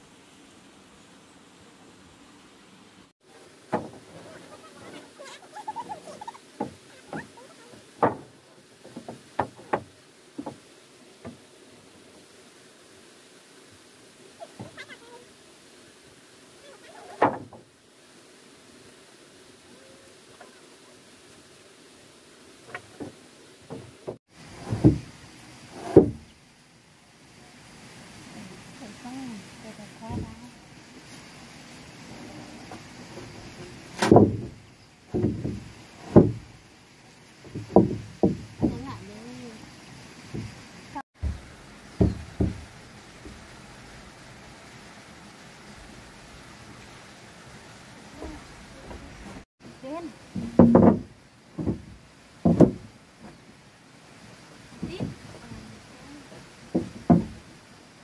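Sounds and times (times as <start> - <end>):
faint background hiss: 0.0 - 58.0
wooden plank thudding: 3.7 - 4.4, 6.6 - 7.4, 8.0 - 11.5, 17.2 - 17.6, 22.7 - 25.1, 25.8 - 26.3, 33.5 - 36.6, 37.4 - 39.1, 40.3 - 40.6, 41.2 - 43.4, 50.3 - 53.4, 54.8 - 55.7, 56.4 - 57.5
knock on wooden floor: 50.4 - 52.8, 56.7 - 57.4.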